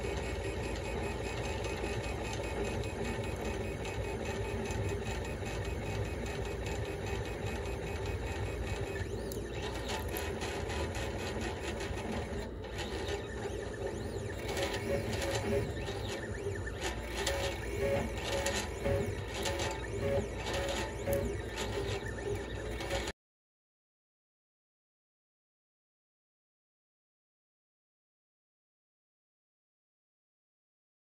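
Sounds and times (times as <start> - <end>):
printer motors whirring and buzzing: 0.0 - 23.1
steady mechanical drone: 0.0 - 23.1.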